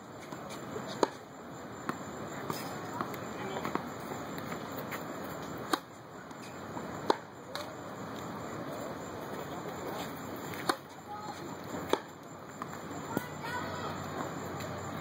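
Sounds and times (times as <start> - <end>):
tennis racket hitting ball: 10.6 - 10.9, 11.9 - 12.1.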